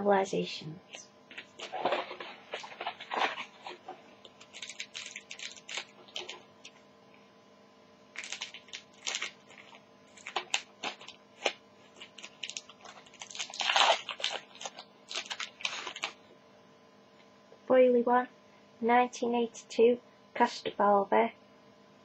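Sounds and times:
foil wrapper crinkling: 1.3s - 6.8s, 8.1s - 16.2s.

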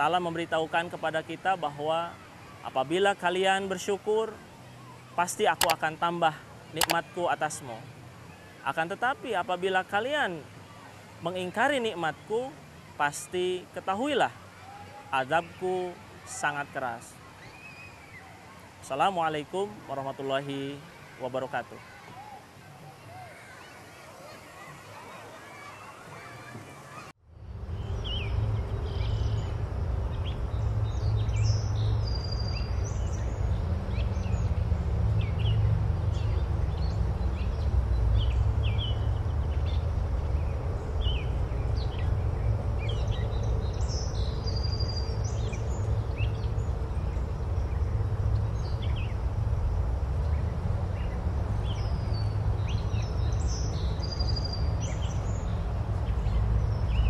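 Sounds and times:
low outdoor rumble: 27.3s - 57.0s
birds chirping and calling: 35.2s - 49.3s, 50.2s - 57.0s.

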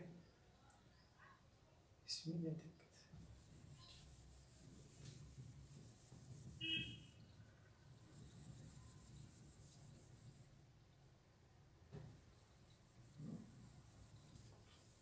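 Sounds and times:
cloth rubbing whiteboard: 3.2s - 7.1s, 7.8s - 10.6s, 12.0s - 15.0s.

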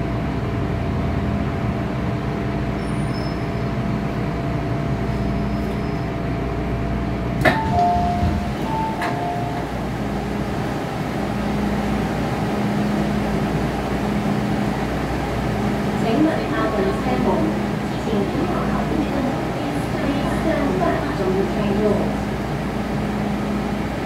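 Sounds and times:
train humming: 0.0s - 24.0s
sliding doors opening: 7.4s - 11.0s.

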